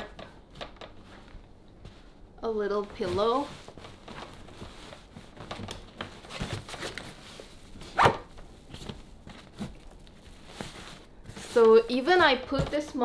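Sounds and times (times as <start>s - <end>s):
fabric rustling: 0.4s - 13.0s.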